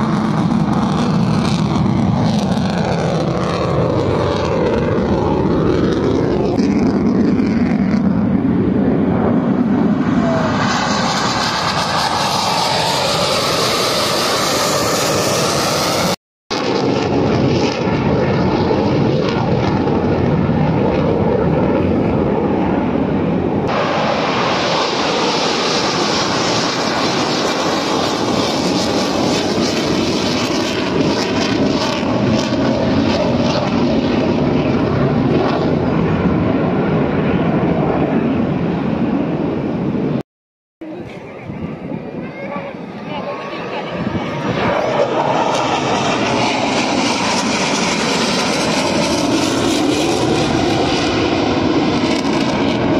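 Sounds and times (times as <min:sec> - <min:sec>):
jet engines roaring: 0:00.0 - 0:40.2, 0:40.8 - 0:52.9.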